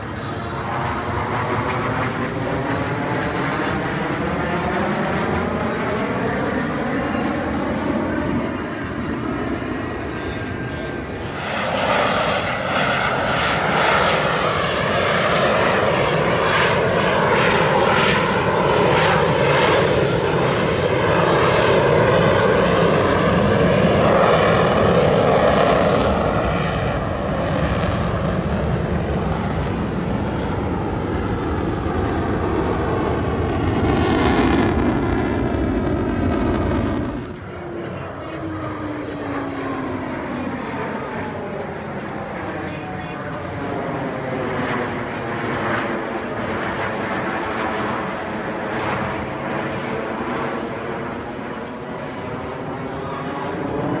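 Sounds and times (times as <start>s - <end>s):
jets flying low past: 0.0s - 54.0s.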